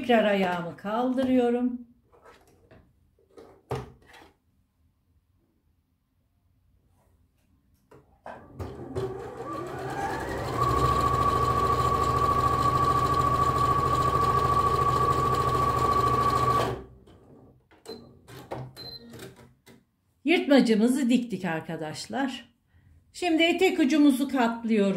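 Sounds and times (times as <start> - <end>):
sewing machine stitching: 8.4 - 16.9.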